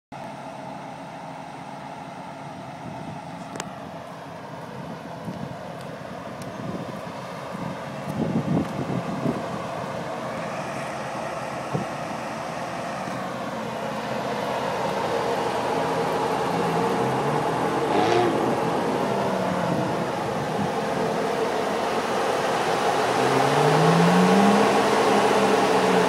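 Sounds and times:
vehicle engine idling: 0.1 - 26.0
wind bumps on microphone: 6.5 - 9.5.

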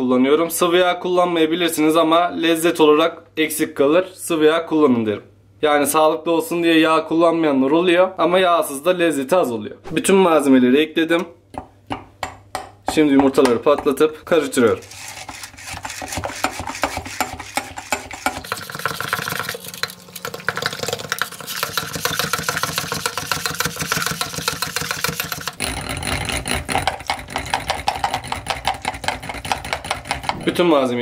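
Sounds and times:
whisk beating batter in glass bowl: 13.2 - 30.4.

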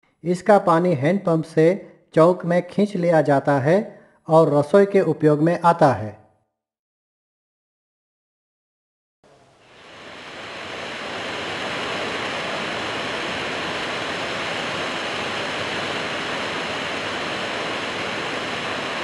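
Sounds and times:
waterfall rushing onto rock: 9.6 - 19.0.

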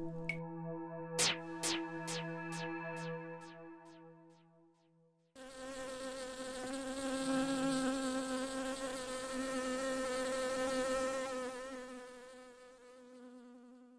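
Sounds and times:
bee buzzing: 5.4 - 13.9.

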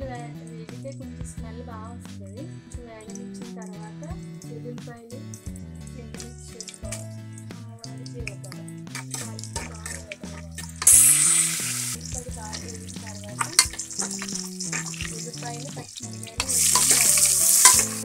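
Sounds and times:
hot oil sizzling: 6.5 - 18.0
ladle scraping against pot: 8.2 - 18.0
loud bursts of hissing: 10.8 - 12.1, 15.8 - 18.0.

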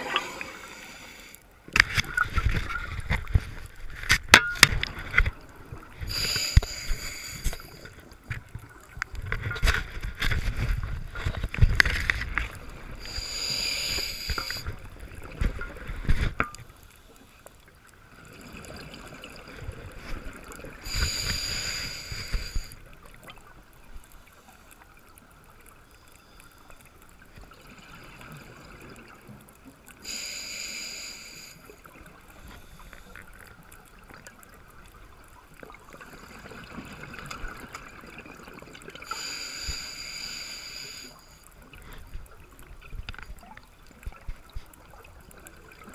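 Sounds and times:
diver inhaling through regulator: 0.0 - 1.4, 6.1 - 8.0, 13.0 - 14.8, 20.8 - 22.8, 30.0 - 31.6, 39.1 - 41.4.

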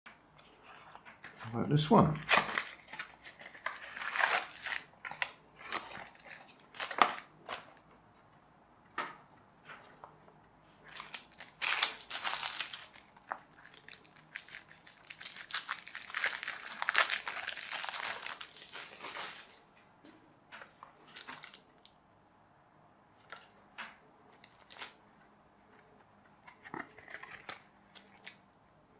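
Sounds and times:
cardboard box and card rustling: 2.3 - 7.8, 10.9 - 19.6
plastic wrap crinkling: 2.3 - 7.9, 10.8 - 19.7, 21.0 - 21.9, 24.4 - 25.0.

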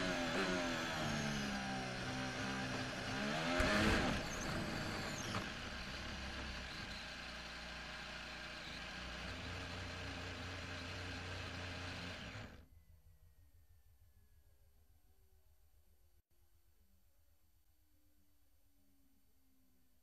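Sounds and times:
racing car engine: 0.0 - 12.6.

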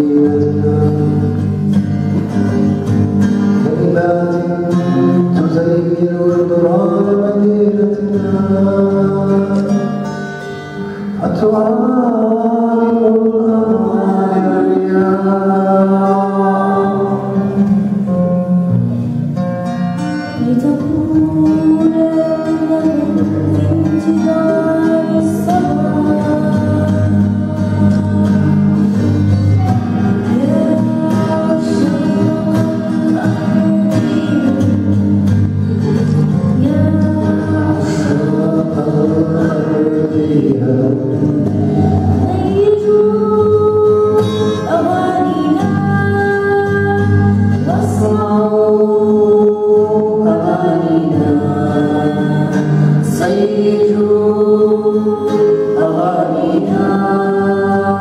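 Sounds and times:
acoustic guitar: 0.0 - 58.0
girl singing into microphone: 12.3 - 18.8, 20.2 - 40.2, 41.0 - 58.0.

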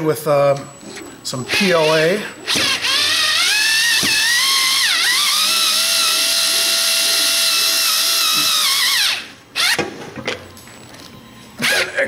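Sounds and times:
electric screwdriver whining: 0.9 - 9.9.

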